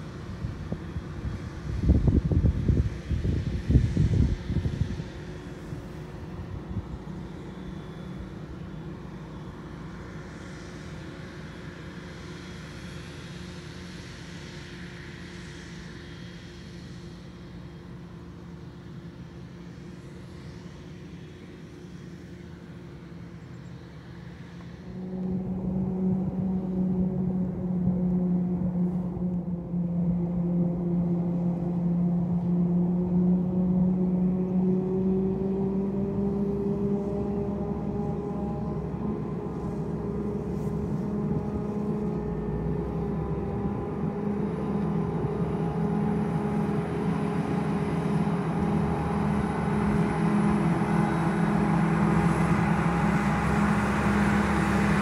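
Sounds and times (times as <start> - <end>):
nearer engine drone: 0.0 - 55.0
distant harvester engine chopping: 21.4 - 55.0.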